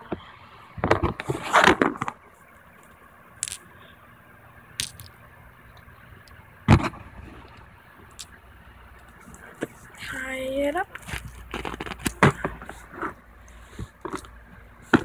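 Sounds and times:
sharp clicks: 4.8 - 6.4.

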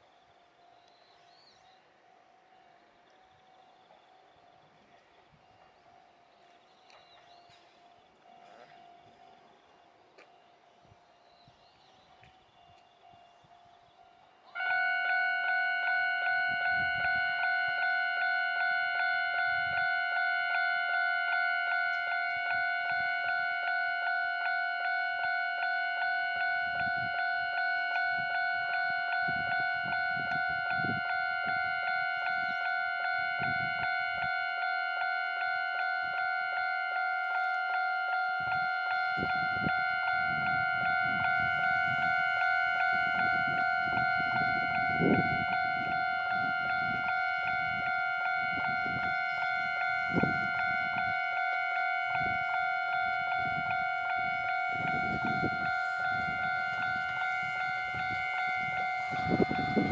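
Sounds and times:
electric train rumble: 0.0 - 59.9.

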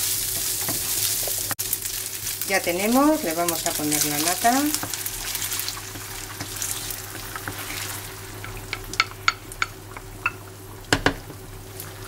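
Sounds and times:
cream sizzling in a frying pan: 0.0 - 12.0
spatula knocking on pan: 8.4 - 11.3
wooden spatula tapping a pan: 8.4 - 11.3.

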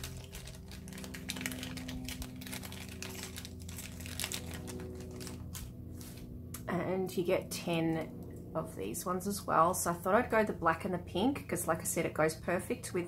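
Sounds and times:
plastic bag crinkling: 0.0 - 6.1.

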